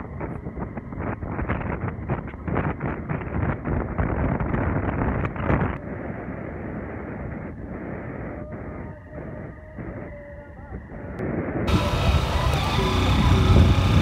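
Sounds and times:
wind buffeting microphone: 0.0s - 14.0s
road and engine noise: 11.7s - 14.0s.

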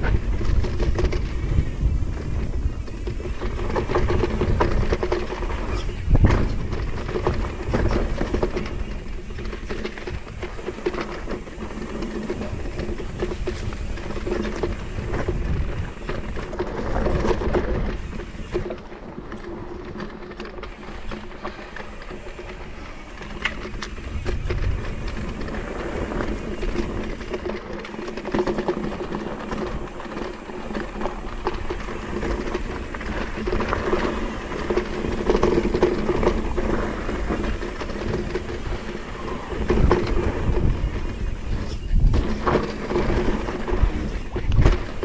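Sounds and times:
bike rattling and knocking: 0.0s - 45.0s
bike tyres rumbling on dirt: 0.0s - 45.0s
wind buffeting microphone: 0.0s - 45.0s.

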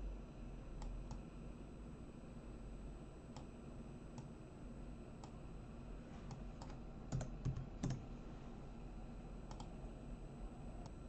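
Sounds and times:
computer mouse clicks: 0.8s - 1.2s, 3.3s - 3.5s, 4.1s - 4.3s, 6.3s - 8.1s, 9.5s - 9.8s.

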